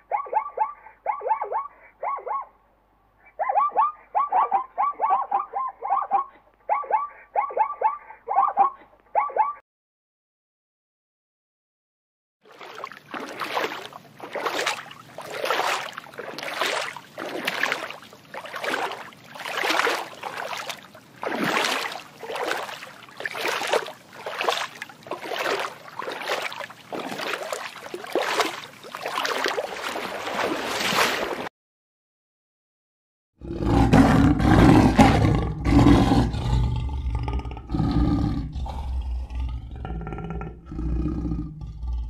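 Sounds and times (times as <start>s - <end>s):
water sloshing in surges: 12.4s - 31.5s.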